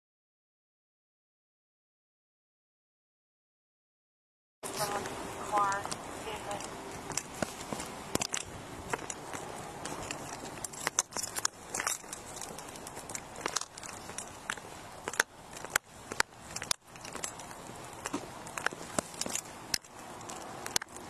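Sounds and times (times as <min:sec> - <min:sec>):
footsteps on concrete: 0:04.6 - 0:21.0
steady microphone hiss: 0:04.6 - 0:21.0
gear clicking against body camera: 0:04.7 - 0:21.0.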